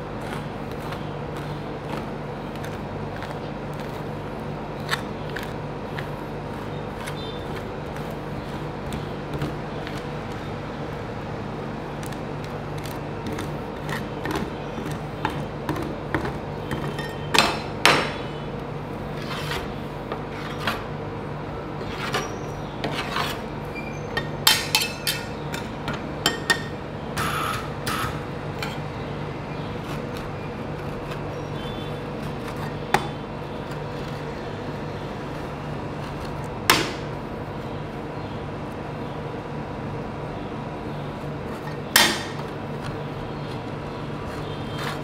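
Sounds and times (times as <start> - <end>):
steady hum: 0.0 - 45.0
metal spatulas clicking and scraping: 24.2 - 25.7.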